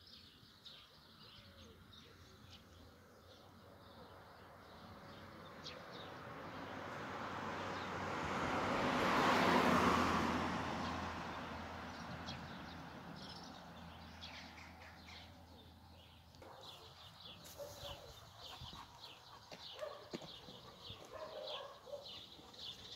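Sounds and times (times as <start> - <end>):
road vehicle passing: 4.7 - 16.2.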